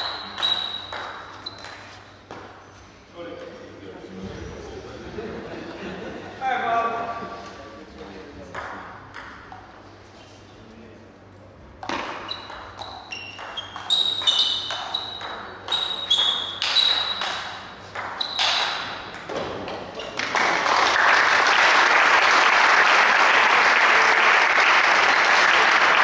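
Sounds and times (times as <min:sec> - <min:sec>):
table tennis ball knocking: 0:00.0 - 0:02.6, 0:08.0 - 0:09.7, 0:11.8 - 0:15.9, 0:16.5 - 0:19.9
applause: 0:20.2 - 0:26.0.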